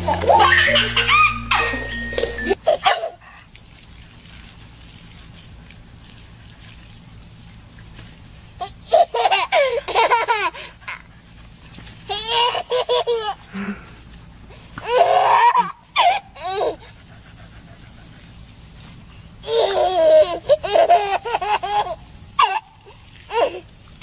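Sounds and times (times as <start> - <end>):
toddler giggling: 0.0 - 3.4, 8.6 - 11.1, 12.1 - 13.9, 14.8 - 17.0, 19.4 - 23.7.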